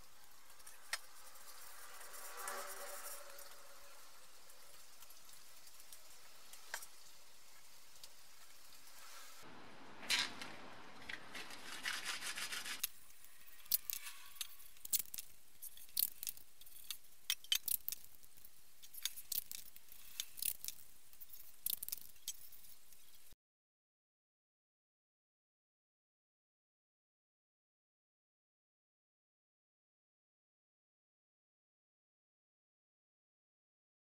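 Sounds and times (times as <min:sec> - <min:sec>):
tape crackling as smoothed: 0:00.1 - 0:09.4, 0:10.0 - 0:23.4
masking tape tearing off roll: 0:11.2 - 0:18.2.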